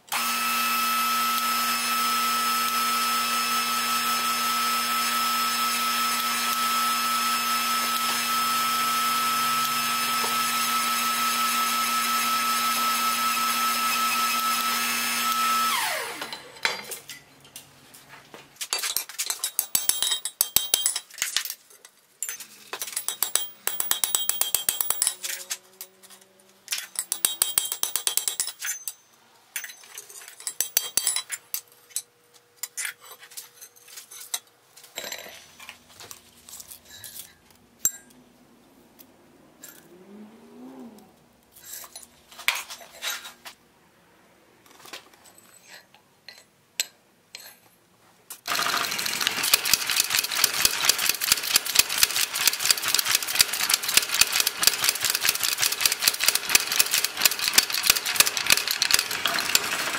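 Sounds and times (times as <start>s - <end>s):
clinks of iron and tools: 16.2s - 35.8s, 36.5s - 38.2s, 45.1s - 48.5s
rapid mechanical clicking clatter: 48.5s - 59.9s.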